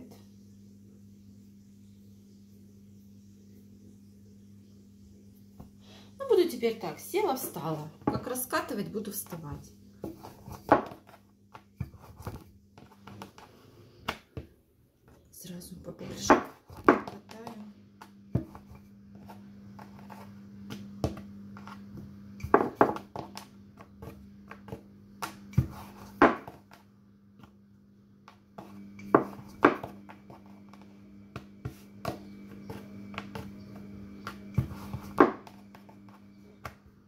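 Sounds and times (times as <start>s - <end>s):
steady low hum: 0.0s - 37.0s
rolling pin rolling dough: 6.5s - 37.0s.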